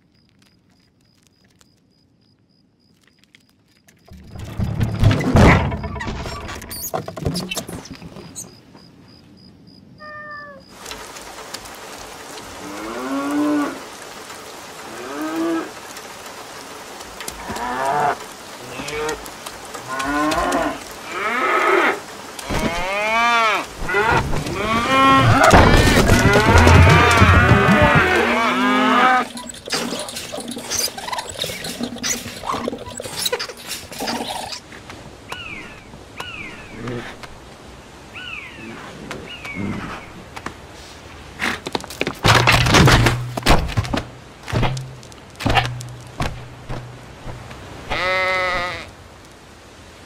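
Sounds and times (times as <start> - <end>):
cows mooing: 19.8 - 29.4.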